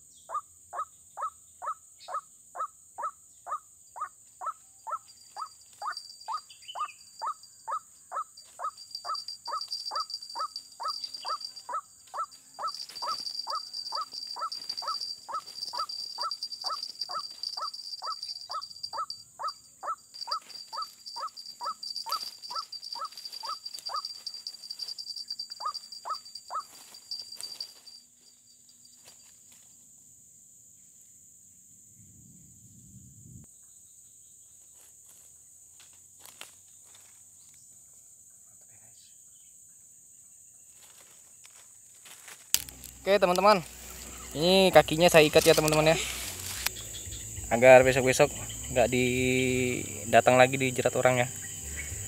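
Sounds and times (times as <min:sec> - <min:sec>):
high insect drone: 0:00.0 - 0:52.0
waterhen kwak calls: 0:00.3 - 0:24.1.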